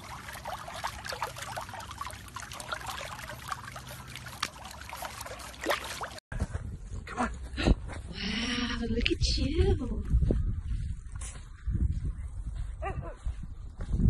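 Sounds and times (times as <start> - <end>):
dog paddling splashes in pool: 0.0 - 6.2.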